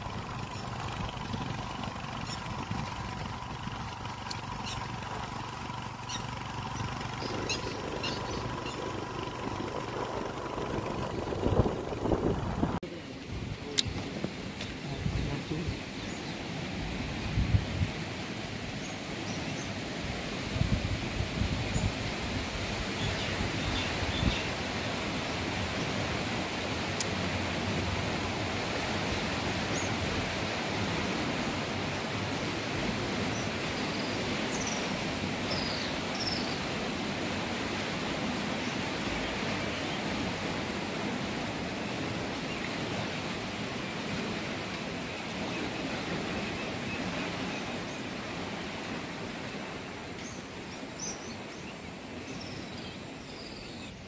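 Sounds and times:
canal water rushing: 0:00.0 - 0:53.1
faint bird chirps: 0:05.8 - 0:10.1.

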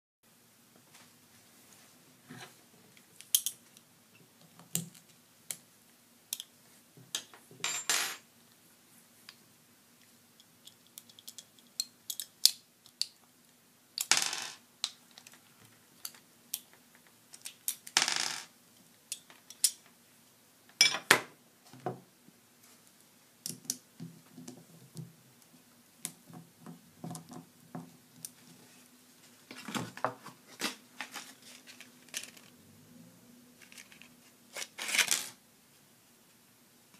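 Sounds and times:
faint steady hum: 0:00.3 - 0:36.9
small parts clicking and clinking: 0:03.2 - 0:03.6, 0:10.4 - 0:13.2, 0:14.8 - 0:18.5, 0:19.1 - 0:19.9, 0:31.1 - 0:32.5, 0:33.6 - 0:35.4.

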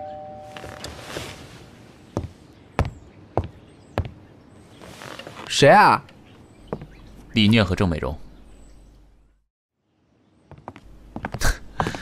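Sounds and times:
two-note doorbell chime: 0:00.0 - 0:00.8.

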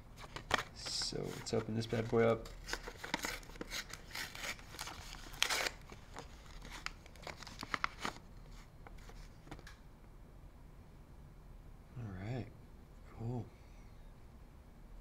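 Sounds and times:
paper crinkling and tearing: 0:00.2 - 0:09.3.

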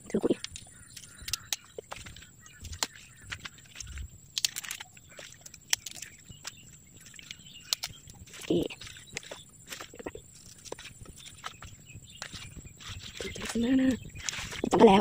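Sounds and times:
leaves rustling: 0:00.0 - 0:15.0
stem snapping and cracking: 0:00.4 - 0:06.2, 0:07.2 - 0:10.8.

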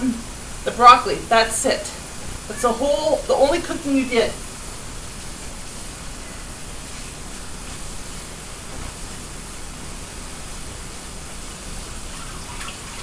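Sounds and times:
tap water running: 0:11.6 - 0:13.0.

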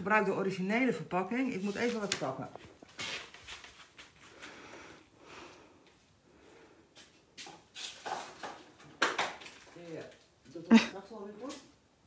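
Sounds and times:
faint rustling: 0:01.3 - 0:08.4.

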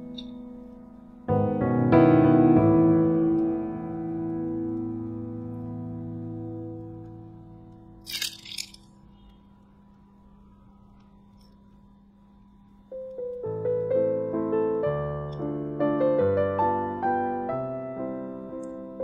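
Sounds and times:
solo piano music: 0:00.0 - 0:08.0, 0:12.9 - 0:19.0.

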